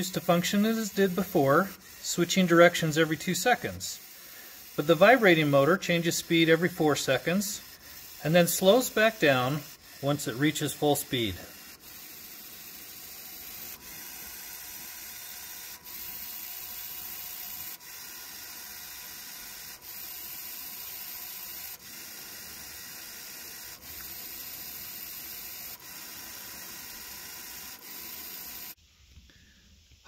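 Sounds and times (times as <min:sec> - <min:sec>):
small motors whirring: 0:00.0 - 0:28.8
gear motor reversing tick: 0:23.7 - 0:28.6.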